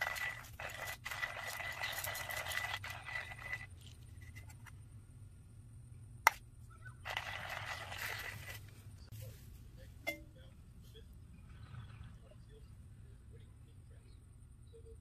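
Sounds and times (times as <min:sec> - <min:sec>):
coffee grinder grinding beans: 0:00.0 - 0:04.4, 0:07.0 - 0:08.6.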